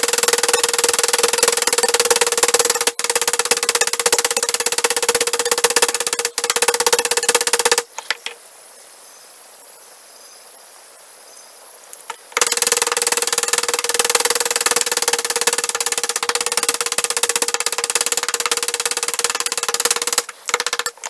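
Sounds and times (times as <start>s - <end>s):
hammer tapping rapidly on metal: 0.0s - 7.9s, 12.4s - 21.0s.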